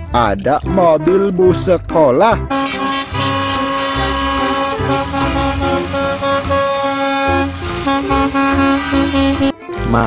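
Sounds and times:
background music with bass line: 0.0 - 10.0
bus driving past: 2.5 - 9.9.

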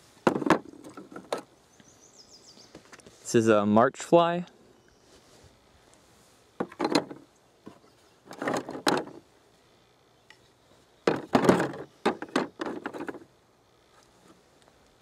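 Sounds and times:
shale slabs clattering in plastic bin: 11.1 - 13.2.

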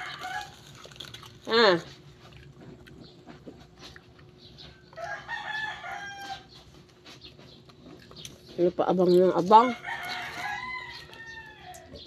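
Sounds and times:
rooster crowing: 0.0 - 0.6, 4.9 - 6.6, 9.7 - 12.0.

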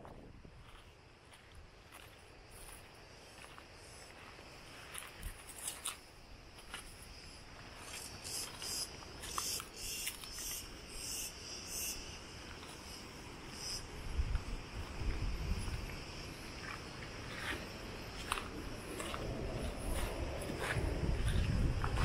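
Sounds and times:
insects singing in rasping pulses: 0.0 - 22.0
footsteps on gravel: 15.8 - 22.0.

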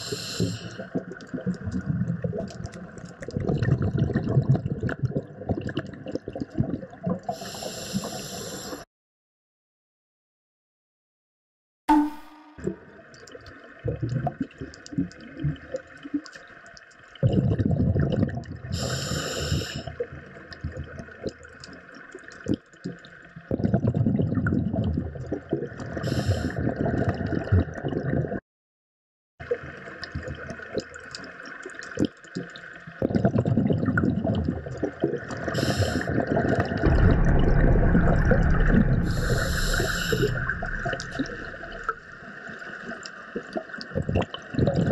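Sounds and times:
exhaled bubbles gurgling underwater: 0.0 - 8.8, 12.9 - 16.3, 17.2 - 28.4, 29.4 - 44.9
diver hissing inhalations: 7.4 - 8.8, 18.8 - 19.8.

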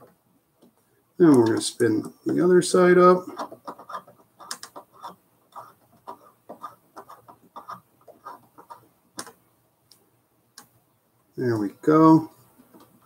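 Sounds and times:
screw squeaking: 3.3 - 8.8.

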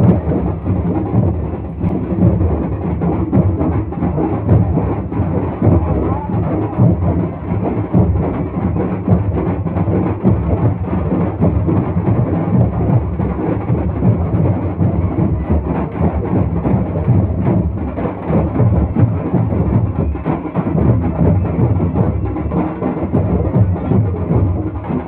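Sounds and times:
loud rumbling drumming: 0.0 - 25.0.

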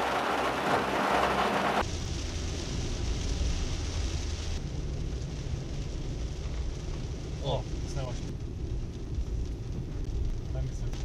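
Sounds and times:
heavy rain hissing: 0.0 - 8.6
car driving on wet road: 0.0 - 11.0.

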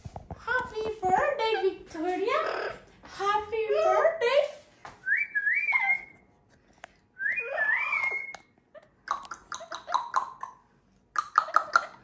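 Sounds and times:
parrot whistling: 5.1 - 6.2, 7.2 - 8.5
parrot clicking chatter: 9.0 - 12.0.

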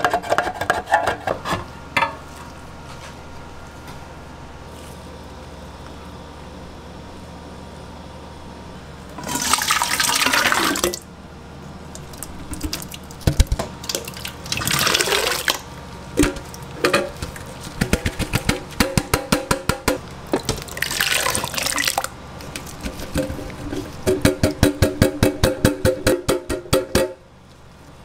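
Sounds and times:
thick tomato pulp pouring: 9.2 - 10.9, 13.8 - 15.6, 20.5 - 24.0.

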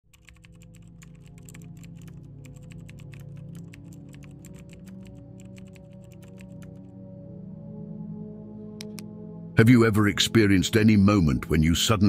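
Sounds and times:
keyboard typing clicks: 0.1 - 6.8, 8.8 - 9.1
ambient music drone: 0.6 - 11.7.

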